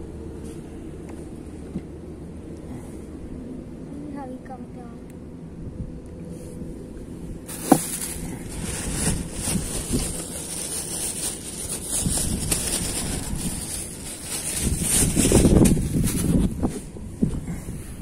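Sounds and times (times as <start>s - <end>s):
plastic bag rustling: 7.5s - 16.8s.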